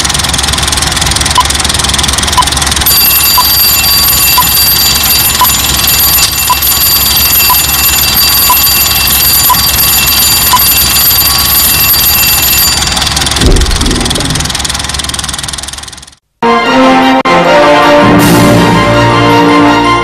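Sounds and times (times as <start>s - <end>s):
alarm clock bell ringing: 2.9s - 13.4s
low thud: 13.4s - 14.6s.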